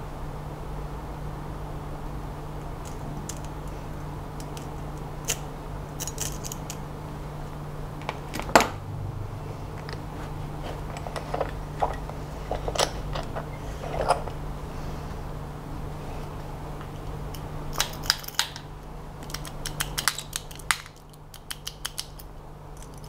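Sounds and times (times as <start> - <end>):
steady low hum: 0.0 - 17.8.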